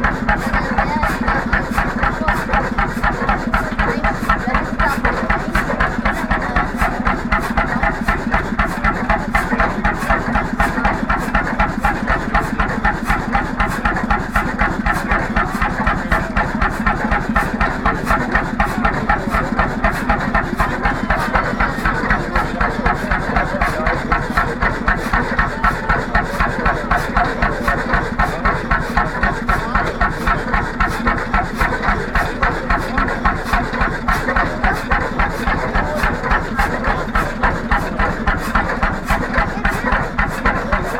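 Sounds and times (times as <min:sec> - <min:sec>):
hot-bulb engine running: 0:00.0 - 0:40.9.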